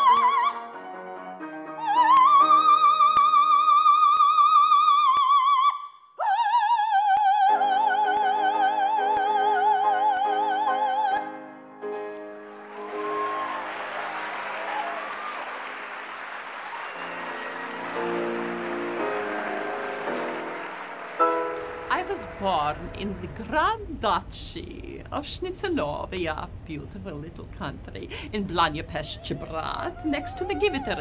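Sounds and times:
piano accompaniment: 0.0 - 3.6, 7.6 - 24.0
soprano singing: 0.0 - 11.4
audience applause: 12.4 - 23.0.

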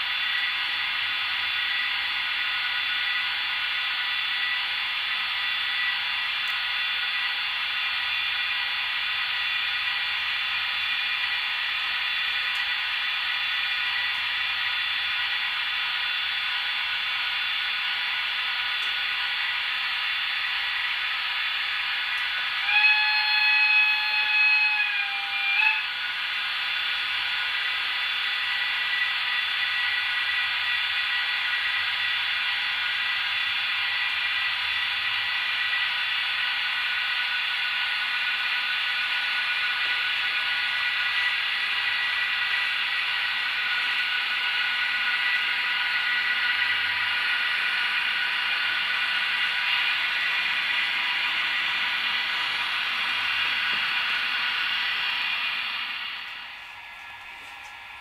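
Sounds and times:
model locomotive whistle: 0.0 - 58.0
model trains whirring on track: 0.0 - 58.0.

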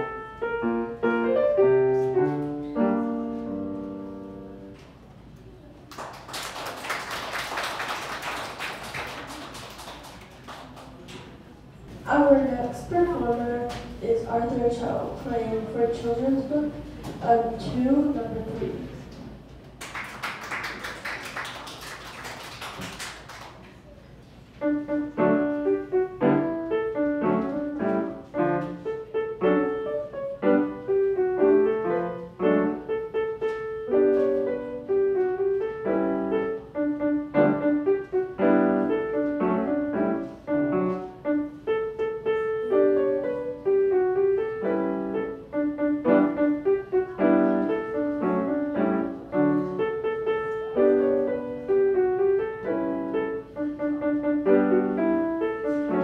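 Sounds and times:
solo acoustic piano: 0.0 - 4.8, 24.6 - 56.0
audience applauding: 5.9 - 11.1, 19.8 - 23.7.

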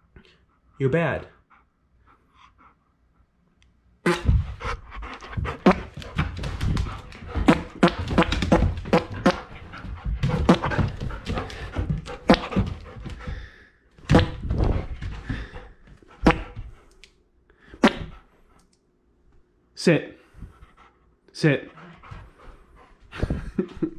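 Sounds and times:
dog panting and snuffling: 4.1 - 13.6, 14.5 - 17.0, 20.2 - 23.8
sharp knocks and scuffs: 4.1 - 16.8.

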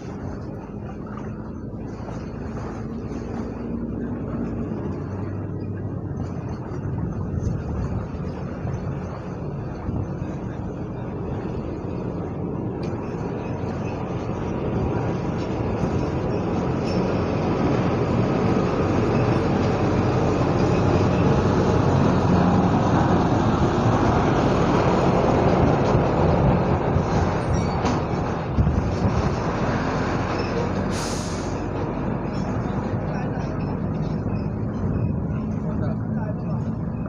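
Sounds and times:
short hiss: 30.9 - 31.6.

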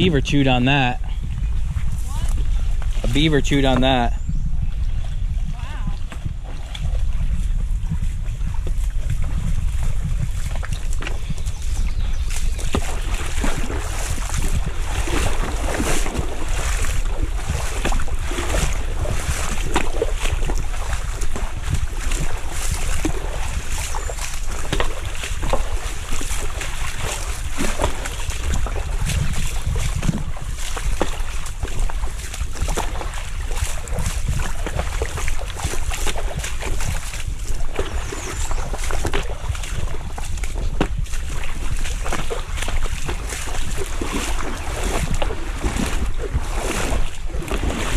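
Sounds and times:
river water running: 0.0 - 47.9
wind on microphone: 0.0 - 47.9.

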